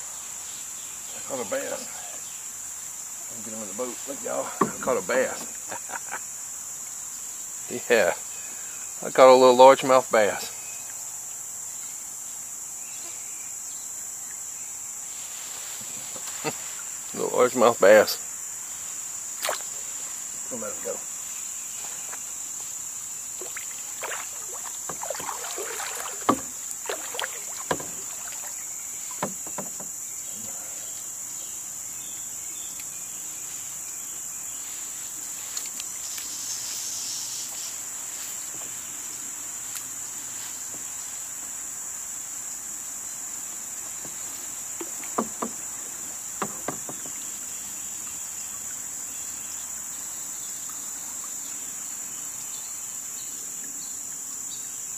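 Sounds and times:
cicadas buzzing: 0.0s - 54.9s
knocks and clicks from kayak: 4.6s - 5.6s, 24.8s - 30.0s, 44.0s - 47.4s.

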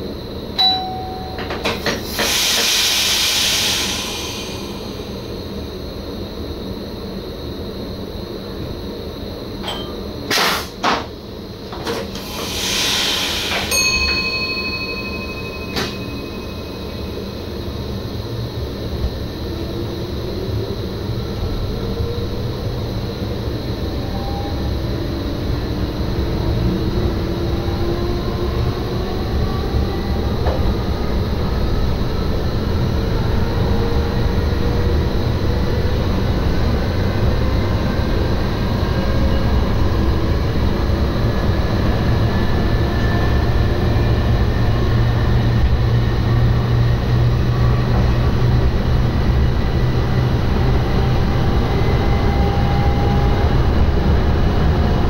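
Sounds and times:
train running noise: 0.0s - 55.0s
steady electronic tone: 0.6s - 1.9s, 13.2s - 18.7s
hiss of air: 1.9s - 5.3s, 12.1s - 13.7s.

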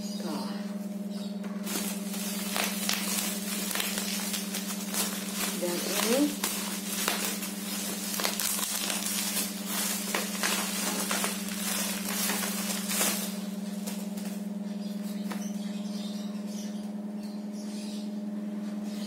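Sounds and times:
steady low hum: 0.0s - 19.0s
bubble wrap crinkling: 1.6s - 14.6s.

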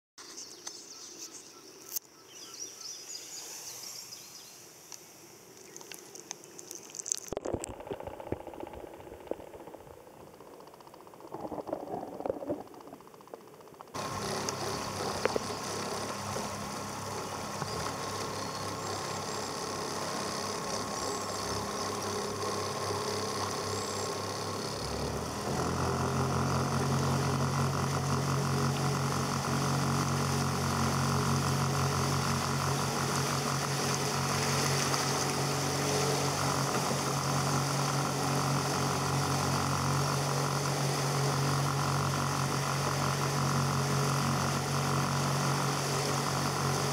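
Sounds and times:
outboard motor running: 5.7s - 46.9s
muffled underwater sound: 7.0s - 14.0s.

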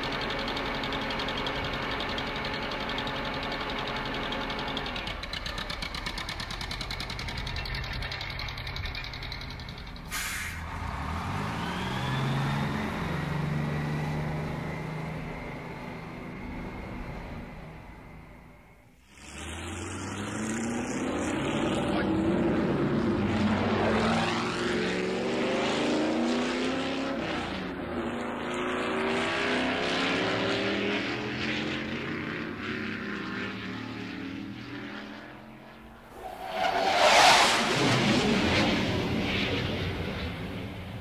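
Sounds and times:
motor vehicles passing: 4.7s - 18.2s, 19.1s - 41.0s
loud rushing vehicle pass: 10.4s - 15.5s, 29.1s - 41.0s.

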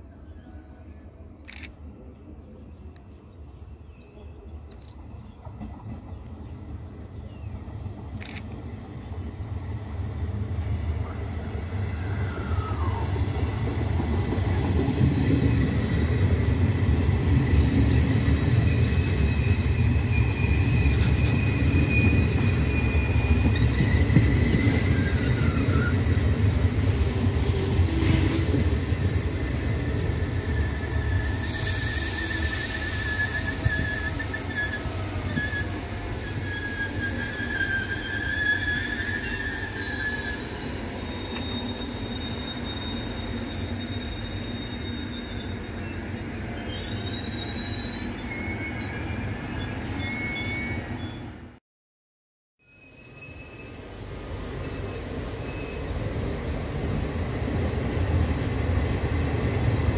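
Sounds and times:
train wheels rumbling on rails: 4.8s - 48.4s
train hiss: 30.3s - 45.1s
high squealing tones: 31.9s - 51.0s.

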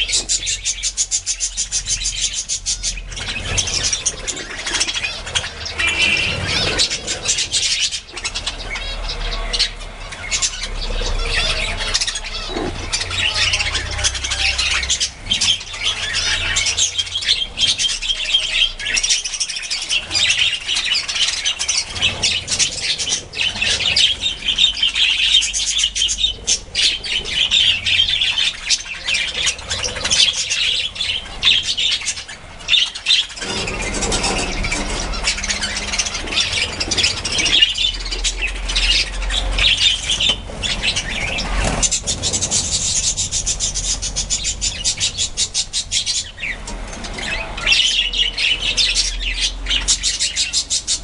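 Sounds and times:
budgerigars chattering and chirping: 0.0s - 51.0s
wings fluttering: 33.2s - 44.6s.

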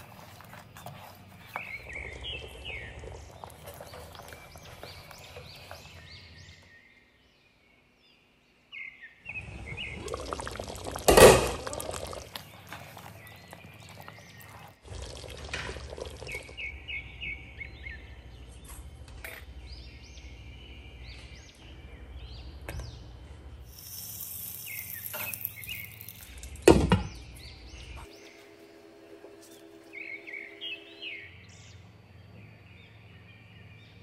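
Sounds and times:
faint chirps: 23.7s - 26.6s.

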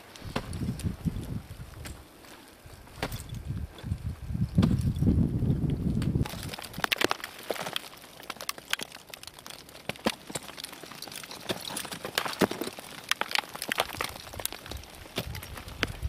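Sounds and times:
crampons crunching into ice: 0.0s - 3.9s, 6.0s - 16.0s.

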